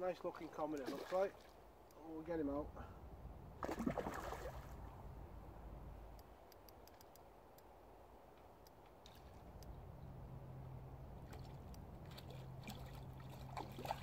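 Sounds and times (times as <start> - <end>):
faint ticks: 6.1 - 7.7, 8.3 - 9.8.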